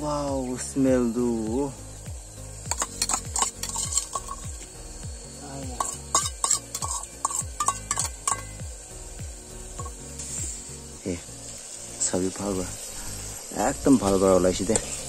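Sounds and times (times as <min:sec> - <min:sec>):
metal spoon scraping steel bowl: 0:02.7 - 0:04.6, 0:05.8 - 0:08.6.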